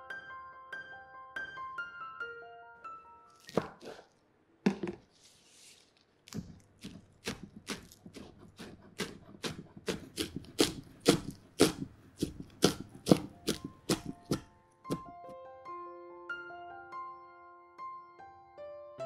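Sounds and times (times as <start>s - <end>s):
knife chopping on wooden board: 3.5s - 4.0s, 6.3s - 15.2s.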